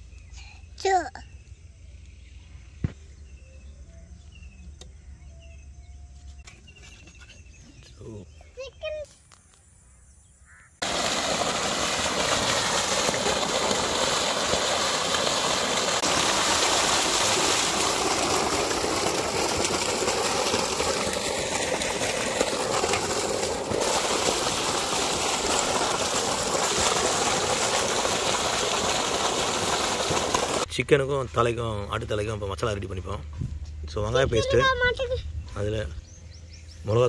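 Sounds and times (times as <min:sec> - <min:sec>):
water jet splashing on wet ground: 0:10.8 - 0:30.7.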